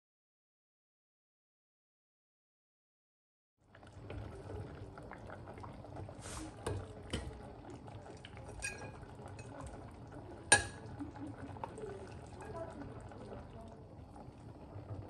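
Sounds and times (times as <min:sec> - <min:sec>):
broth bubbling: 0:03.6 - 0:15.0
wooden spoon scraping glass pot: 0:08.6 - 0:09.5.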